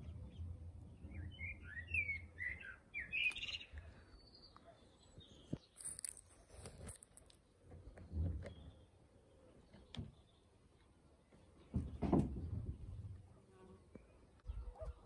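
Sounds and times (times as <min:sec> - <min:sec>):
bird chirping: 0:00.0 - 0:06.2.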